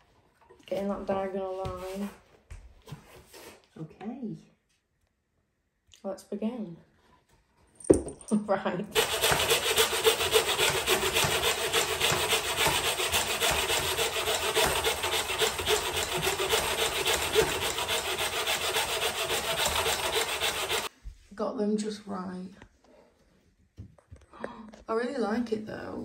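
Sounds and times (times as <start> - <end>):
hand saw cutting wood: 8.9 - 20.9.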